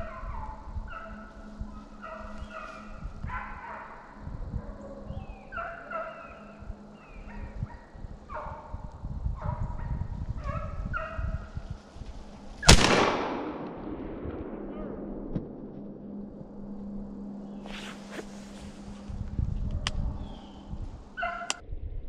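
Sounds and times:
hounds baying: 0:00.0 - 0:08.8, 0:09.4 - 0:11.6, 0:19.8 - 0:21.6.

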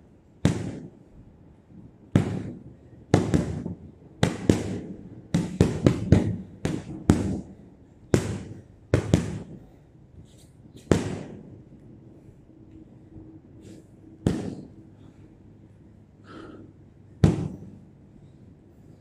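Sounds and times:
gloves punching heavy bag: 0:02.2 - 0:02.6, 0:03.2 - 0:09.5, 0:14.2 - 0:14.7, 0:17.2 - 0:17.7.

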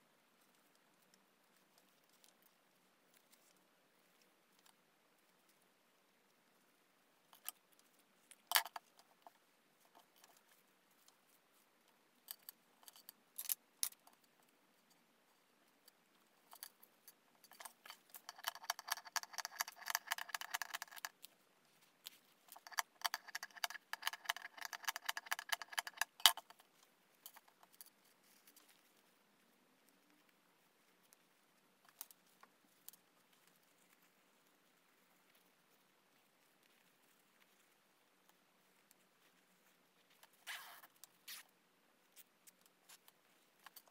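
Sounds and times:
small clicks and taps: 0:15.8 - 0:21.4, 0:22.0 - 0:29.1
zipper rasping: 0:40.4 - 0:41.4.

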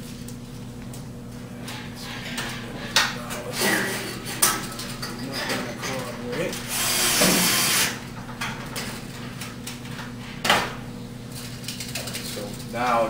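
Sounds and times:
cordless drill driving screw: 0:06.7 - 0:08.0.

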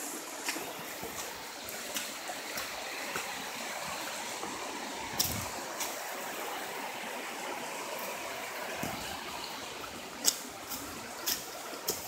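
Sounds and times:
stream rushing: 0:00.0 - 0:12.0
footsteps on leaf litter: 0:00.3 - 0:06.0, 0:08.8 - 0:12.0.

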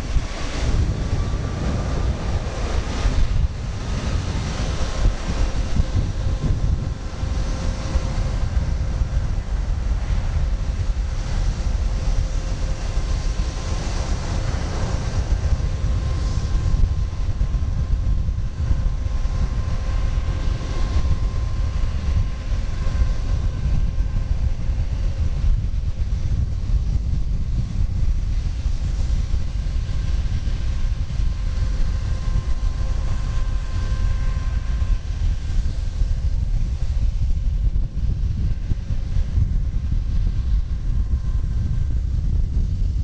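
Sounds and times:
jet engines rumbling with whine: 0:00.0 - 0:43.0.

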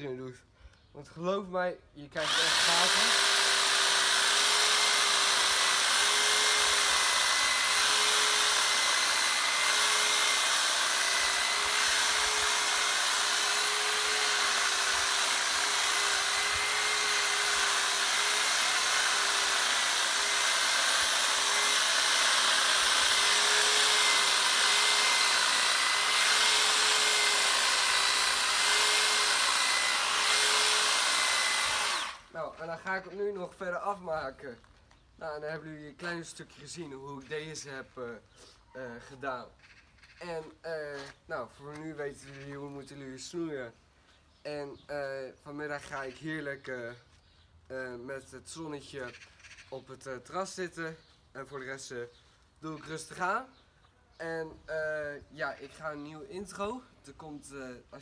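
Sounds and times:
electric hedge trimmer whine: 0:02.2 - 0:32.3.

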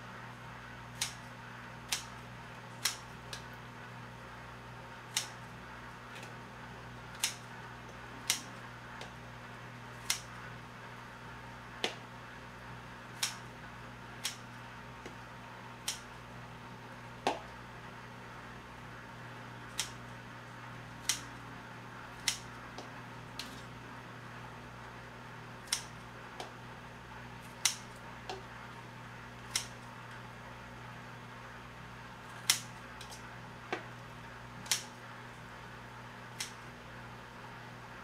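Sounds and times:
scissors snipping: 0:01.0 - 0:01.2, 0:02.8 - 0:03.5, 0:05.1 - 0:05.5, 0:07.1 - 0:07.5, 0:08.2 - 0:09.2, 0:10.0 - 0:10.3, 0:13.2 - 0:13.5, 0:14.2 - 0:14.4, 0:15.8 - 0:16.1, 0:19.7 - 0:20.0, 0:21.0 - 0:21.4, 0:22.2 - 0:23.7, 0:25.6 - 0:26.6, 0:27.4 - 0:28.4, 0:29.5 - 0:29.8, 0:32.3 - 0:33.9, 0:34.6 - 0:35.0.

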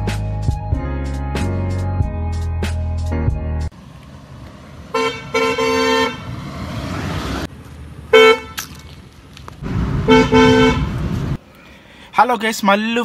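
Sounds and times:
car driving: 0:03.7 - 0:11.5
car horns tooting: 0:04.9 - 0:06.3, 0:08.1 - 0:08.6, 0:10.0 - 0:11.0.

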